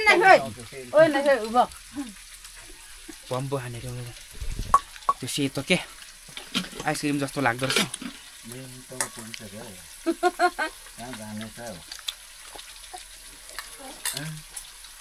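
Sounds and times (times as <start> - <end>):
voices talking: 0.0 - 2.2, 8.5 - 11.8
food sizzling in a pan: 0.0 - 15.0.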